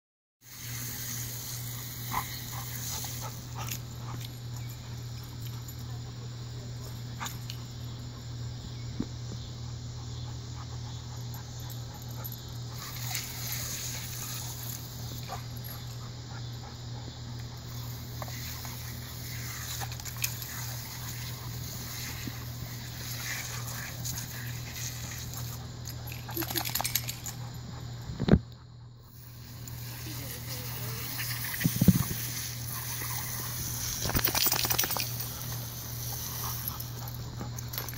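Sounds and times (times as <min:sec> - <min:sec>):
sprinkler spraying water: 0:00.4 - 0:03.8, 0:12.8 - 0:15.3, 0:17.7 - 0:25.6, 0:29.1 - 0:37.2
dog playing sounds: 0:17.3 - 0:28.3, 0:29.6 - 0:37.9.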